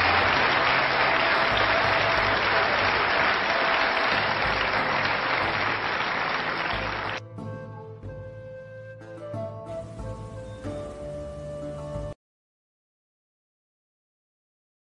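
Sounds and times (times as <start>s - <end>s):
audience applauding: 0.0s - 7.2s
music: 0.0s - 12.2s.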